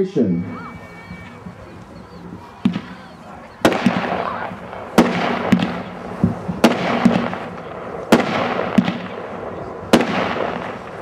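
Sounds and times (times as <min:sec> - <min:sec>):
fireworks bangs: 0:00.0 - 0:11.0
firework hiss: 0:00.6 - 0:11.0
smaller firework pops: 0:02.6 - 0:11.0.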